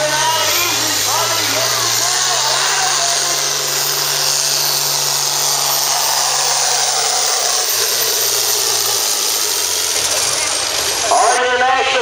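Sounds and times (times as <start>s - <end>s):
tractor diesel engine running flat out: 0.0s - 12.0s.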